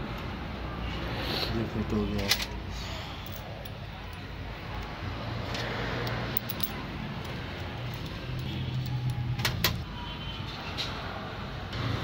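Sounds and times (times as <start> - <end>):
metallic clicks of parts handled: 3.2 - 9.8.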